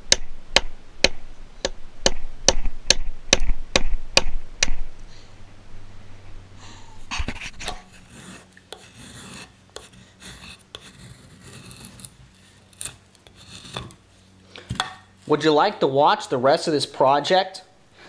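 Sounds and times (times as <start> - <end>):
knife scraping wood: 7.0 - 15.5.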